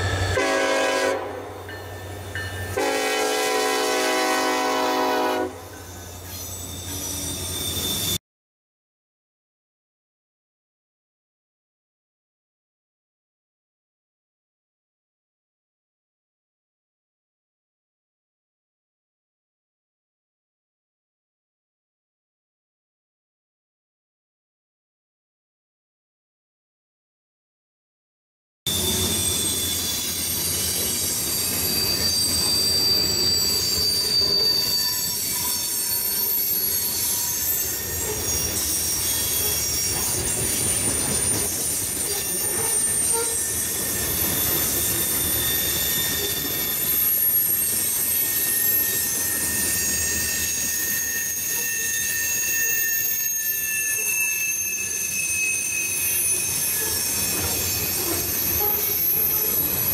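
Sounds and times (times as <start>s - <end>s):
train wheels squealing: 0.0s - 0.9s, 4.1s - 8.2s, 28.7s - 59.9s
rumble of wheels on rail: 0.0s - 8.2s, 28.7s - 55.1s, 55.9s - 59.9s.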